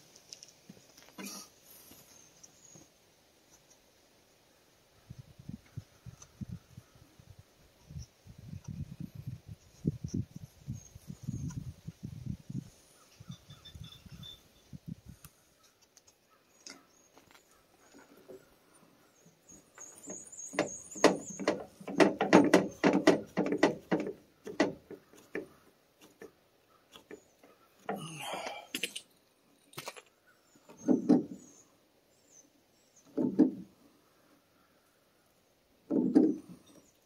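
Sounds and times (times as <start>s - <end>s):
dull knocks: 20.0s - 25.6s.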